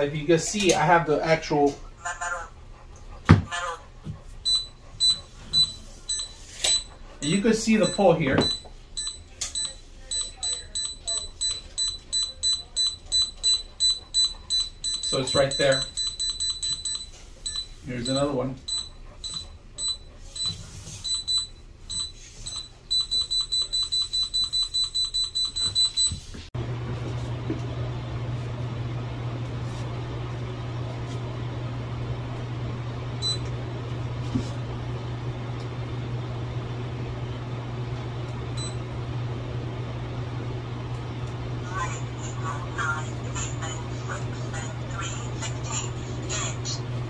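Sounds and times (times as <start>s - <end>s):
wall scanner short high beeps: 4.5s - 6.9s, 7.8s - 26.3s
low equipment hum: 25.8s - 47.0s.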